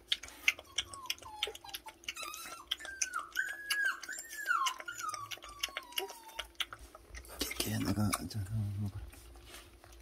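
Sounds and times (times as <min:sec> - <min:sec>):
puppy lapping milk: 0:00.0 - 0:10.0
dog whining: 0:00.6 - 0:06.9.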